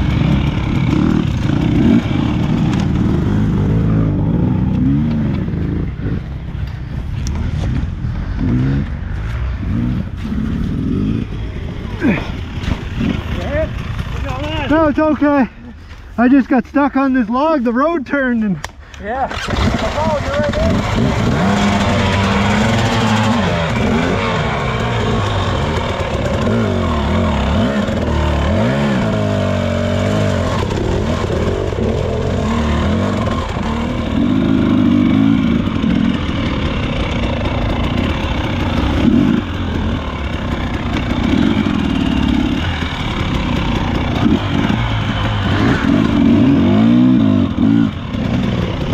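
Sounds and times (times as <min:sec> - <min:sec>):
dirt bike engine revving: 0:00.0 - 0:15.4, 0:19.2 - 0:48.9.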